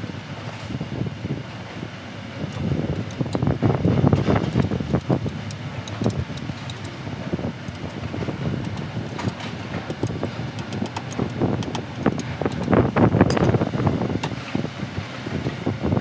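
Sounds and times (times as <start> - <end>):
steady low rumble: 2.2 - 16.0
metallic wrench clicks: 2.5 - 13.6.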